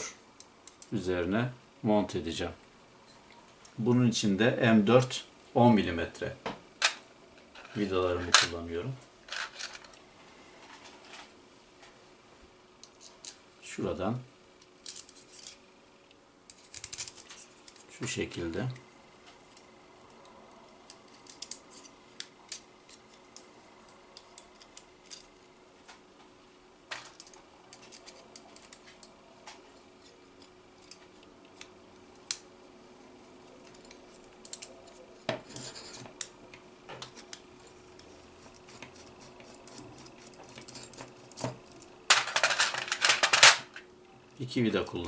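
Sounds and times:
metal parts clattering: 9.3 - 9.9, 42.1 - 43.7
metal parts clicking and clinking: 9.3 - 10.0, 14.6 - 15.6, 16.5 - 18.5, 20.8 - 23.4, 24.2 - 25.4, 27.0 - 29.1, 33.6 - 36.0, 39.7 - 43.8.

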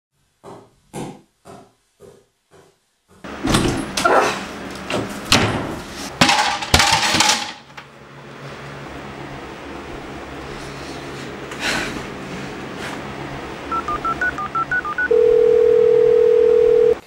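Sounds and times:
office chair crashing over: 5.3 - 7.6.

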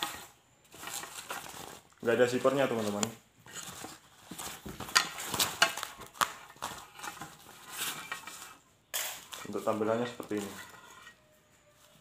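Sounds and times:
cloth rustling: 0.0 - 12.0.

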